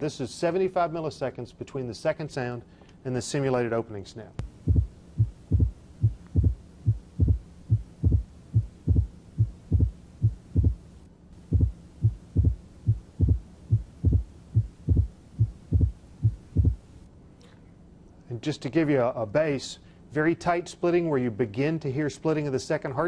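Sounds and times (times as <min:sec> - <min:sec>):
faint steady hum: 0:00.0 - 0:23.0
simulated heartbeat thuds: 0:04.4 - 0:10.8, 0:11.4 - 0:16.9.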